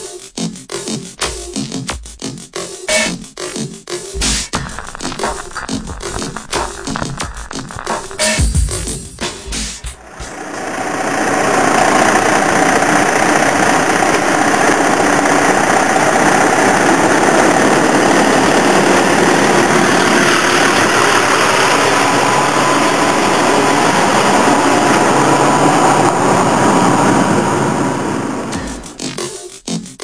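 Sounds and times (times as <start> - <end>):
diesel truck engine running: 9.8 - 29.0.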